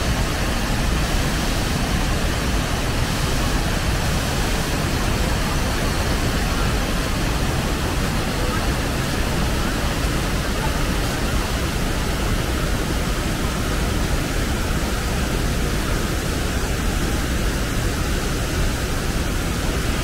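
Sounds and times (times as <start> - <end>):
waterfall roaring: 0.0 - 20.0.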